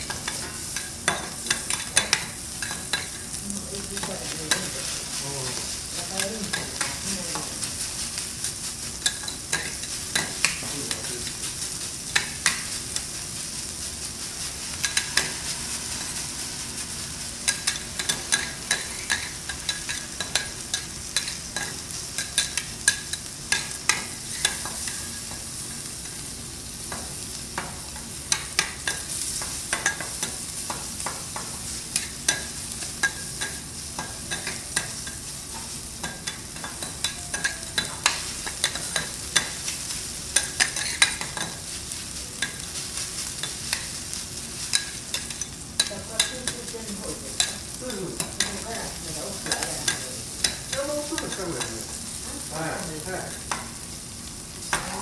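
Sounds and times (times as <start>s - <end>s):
food sizzling on a griddle: 0.0s - 55.0s.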